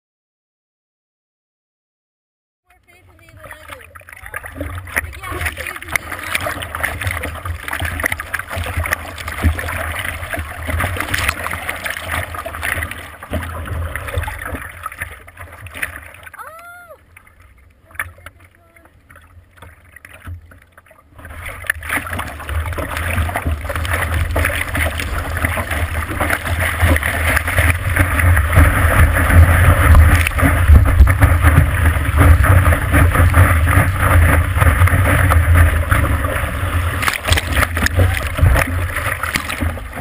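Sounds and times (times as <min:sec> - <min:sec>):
breaking wave splashing: 0:03.2 - 0:16.5, 0:21.2 - 0:40.0
heavy low rumble: 0:22.4 - 0:40.0.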